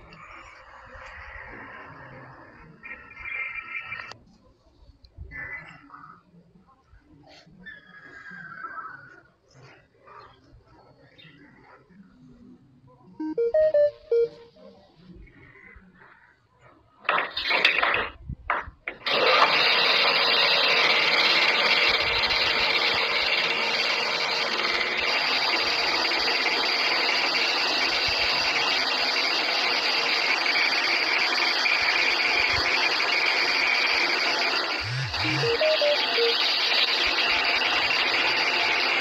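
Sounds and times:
power tool running on steel bolt: 0:19.0 - 0:35.4, 0:36.3 - 0:39.0.

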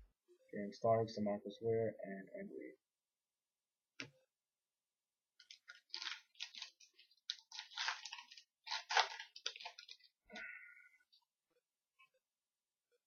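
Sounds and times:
wrapper crinkling and tearing: 0:05.4 - 0:10.1.

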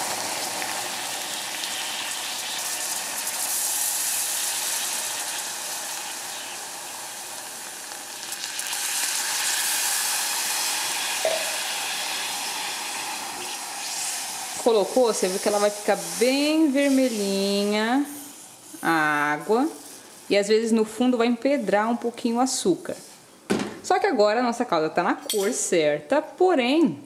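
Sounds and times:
caramel hissing and sizzling: 0:00.0 - 0:23.2.

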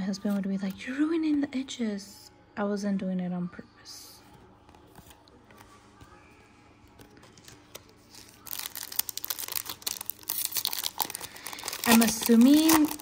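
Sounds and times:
foil wrapper crinkling and tearing: 0:07.4 - 0:13.0.

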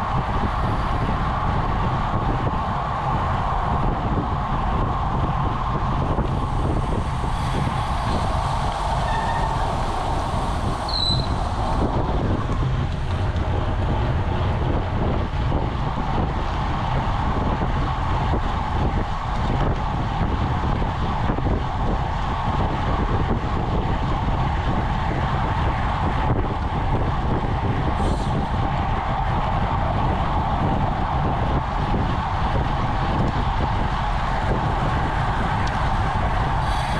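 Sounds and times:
bike tyres hissing on asphalt: 0:00.0 - 0:36.9
wind buffeting microphone: 0:00.0 - 0:36.9
brief high squeak: 0:10.9 - 0:11.4.

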